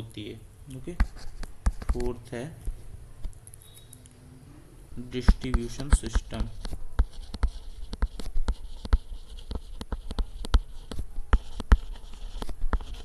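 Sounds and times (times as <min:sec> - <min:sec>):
stylus tapping on tablet: 0:05.2 - 0:13.0.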